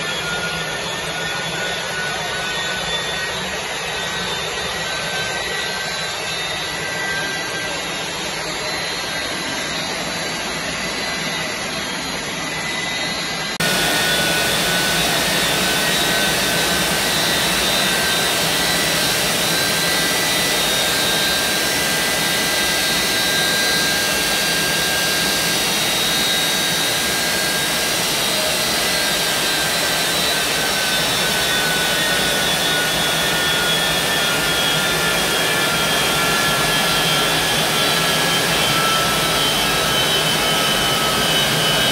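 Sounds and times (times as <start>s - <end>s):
turbojet engine running: 0.0s - 41.9s.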